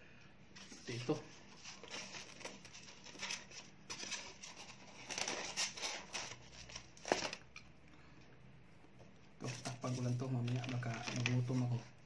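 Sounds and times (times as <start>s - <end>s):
plastic containers rustling: 0.6s - 7.7s, 9.4s - 11.9s.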